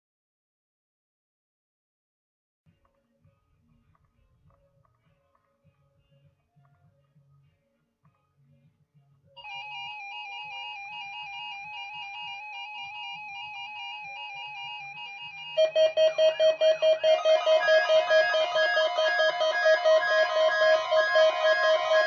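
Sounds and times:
warbling electronic alert tone: 0:09.4 - 0:22.0
pulsing loud beeps: 0:09.5 - 0:22.0.

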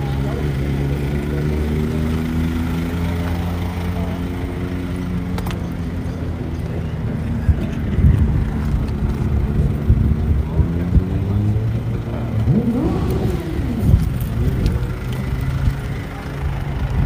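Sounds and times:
heavy low rumble: 0:06.3 - 0:17.0.

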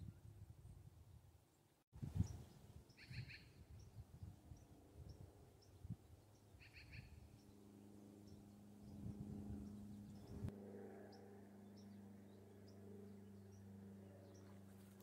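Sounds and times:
bird chirping call: 0:02.2 - 0:04.0, 0:05.6 - 0:07.6.

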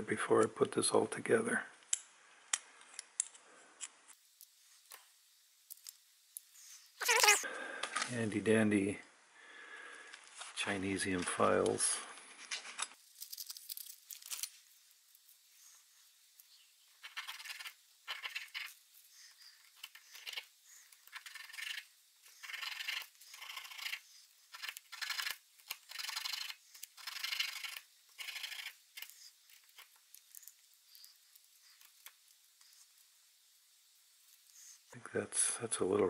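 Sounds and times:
needle file scraping: 0:17.0 - 0:33.0.

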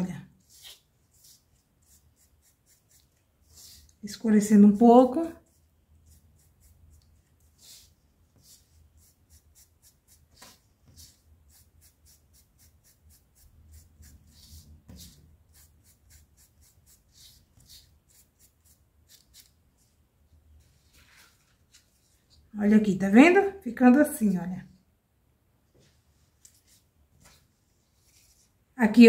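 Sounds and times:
sponge dabbing on foam: 0:00.4 - 0:20.0.

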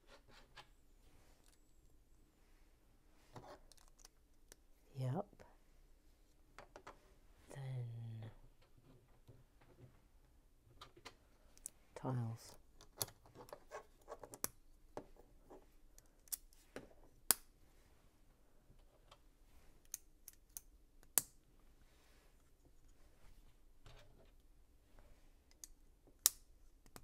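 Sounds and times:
soft rustles: 0:21.6 - 0:25.4.

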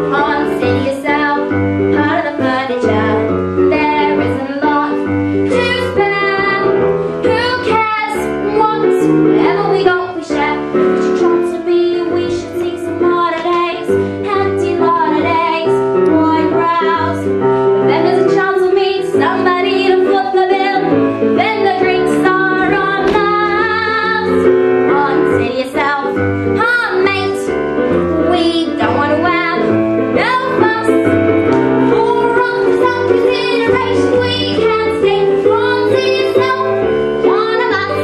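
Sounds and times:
girl singing: 0:00.0 - 0:31.2, 0:31.8 - 0:38.0
instrumental accompaniment: 0:00.0 - 0:38.0.

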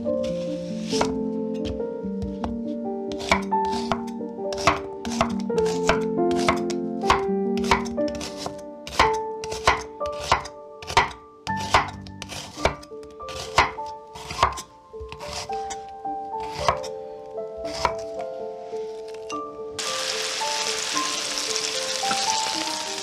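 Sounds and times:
soft background music: 0:00.0 - 0:23.0
knife chopping on cutting board: 0:01.0 - 0:15.5, 0:16.4 - 0:16.9, 0:17.7 - 0:18.0.

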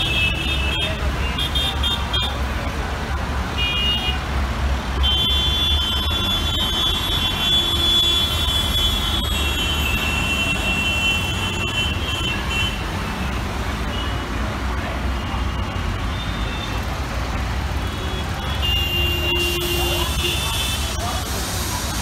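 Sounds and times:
heavy road traffic rumble: 0:00.0 - 0:22.0
vehicle horns honking: 0:05.0 - 0:12.9, 0:17.8 - 0:21.0.

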